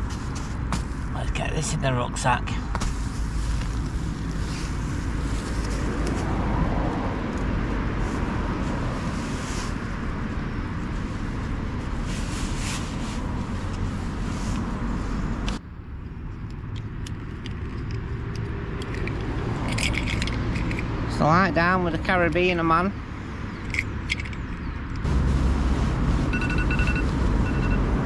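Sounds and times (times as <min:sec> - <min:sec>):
road traffic hum: 0:00.0 - 0:28.0
nylon rustling: 0:02.8 - 0:06.3, 0:10.9 - 0:15.2.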